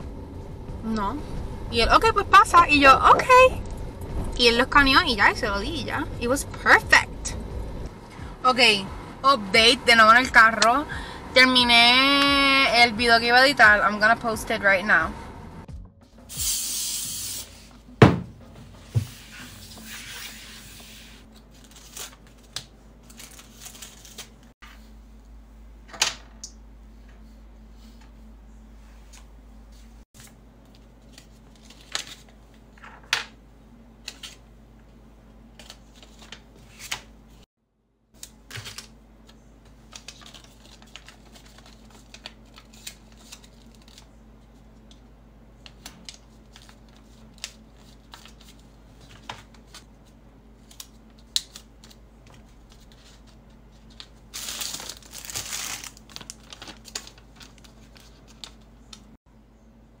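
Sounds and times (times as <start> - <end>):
steady low hum: 0.0 - 60.0
paper rustling: 18.8 - 24.5, 35.5 - 37.1, 38.2 - 45.0, 45.6 - 59.0.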